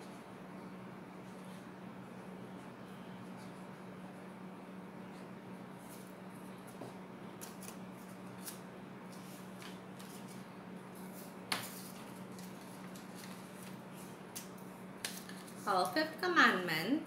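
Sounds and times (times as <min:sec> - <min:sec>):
steady low hum: 0:00.0 - 0:17.0
paper being handled: 0:07.4 - 0:16.0.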